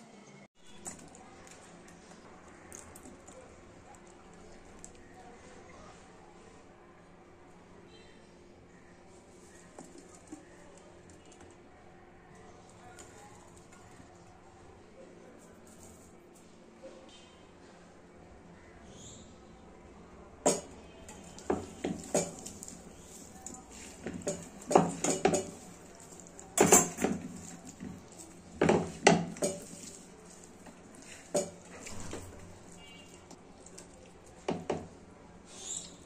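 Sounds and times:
wok knocking and rattling: 20.4 - 33.4, 34.4 - 35.0.

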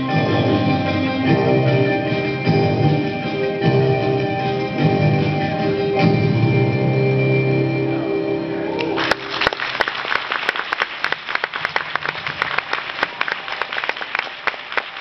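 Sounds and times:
dance music: 0.0 - 8.8
audience applauding: 8.8 - 15.0.

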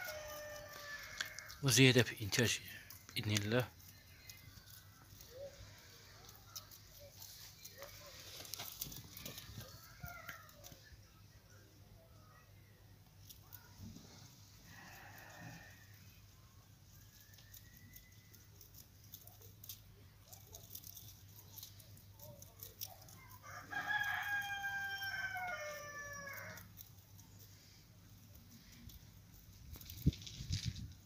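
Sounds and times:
rooster crowing: 0.0 - 1.7, 23.3 - 26.7.

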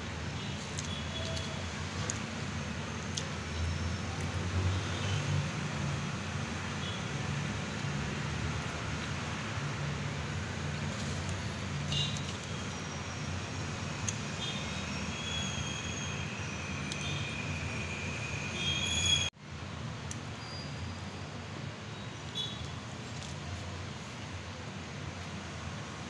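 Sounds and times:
high squeals: 12.2 - 19.3.

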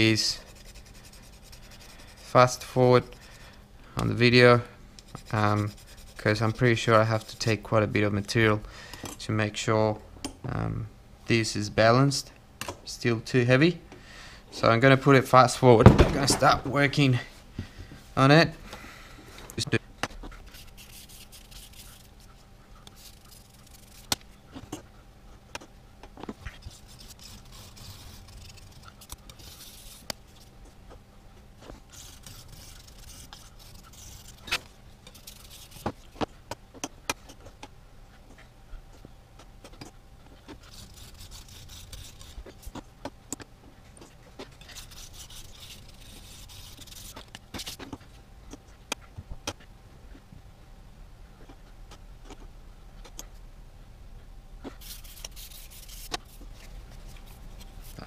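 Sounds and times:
sanding stick rasping on plastic: 0.1 - 2.6, 5.1 - 7.6, 20.5 - 22.4, 23.0 - 24.1, 26.6 - 30.2, 31.9 - 36.1, 40.7 - 42.7, 44.6 - 47.8, 54.8 - 58.0.

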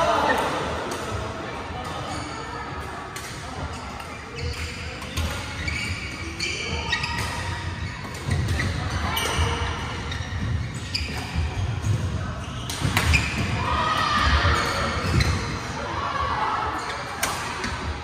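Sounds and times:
shoe squeaks on court floor: 3.7 - 13.5.

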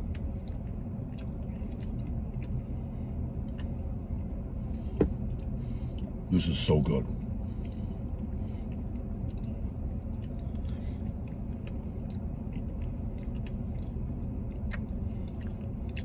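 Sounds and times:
chewing and mouth smacks: 0.0 - 4.3, 7.6 - 16.0
car cabin hum: 4.5 - 5.6.

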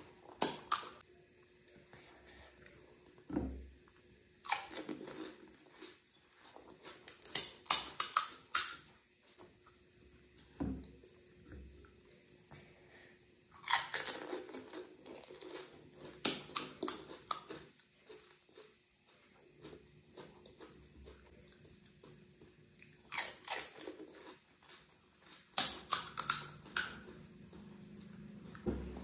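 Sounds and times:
crisp shells crunching and chewed: 4.4 - 8.8, 13.6 - 22.2, 22.8 - 27.7.

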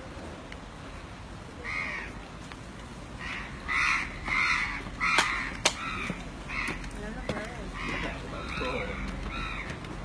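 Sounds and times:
crows cawing: 1.6 - 2.2, 3.2 - 10.0.

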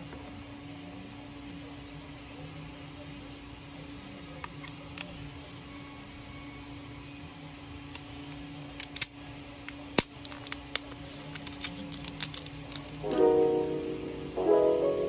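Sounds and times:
steady low hum: 0.0 - 15.0
piano music: 13.0 - 15.0.

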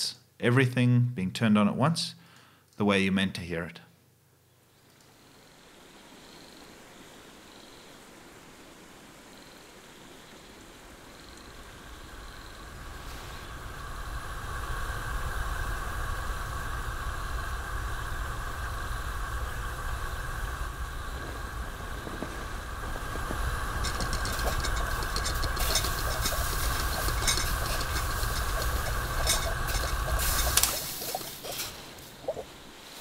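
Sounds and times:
gas stove hissing: 12.9 - 32.2
teapot crackling: 21.2 - 32.5.

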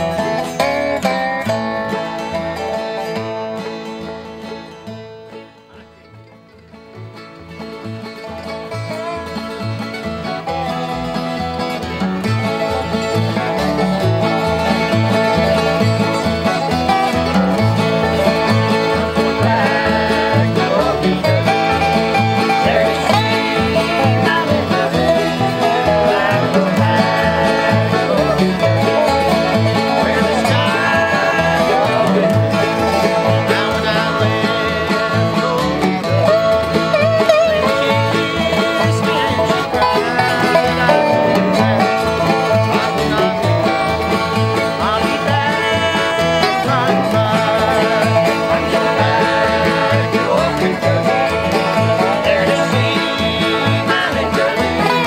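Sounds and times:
bluegrass string band playing: 0.0 - 55.0.

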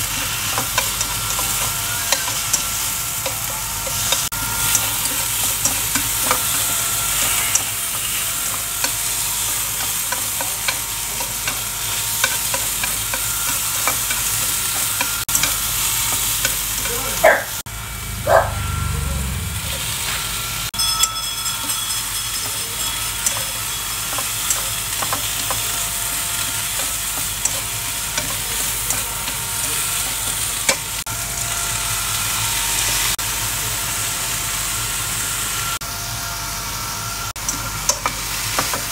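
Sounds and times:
meat and onion sizzling in pan: 0.0 - 38.9
chopsticks clicking on pan: 26.7 - 29.1.

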